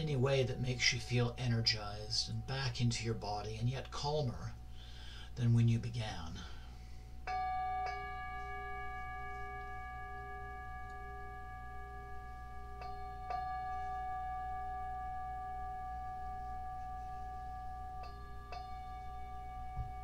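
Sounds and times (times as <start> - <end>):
singing bowl ringing: 6.4 - 20.0.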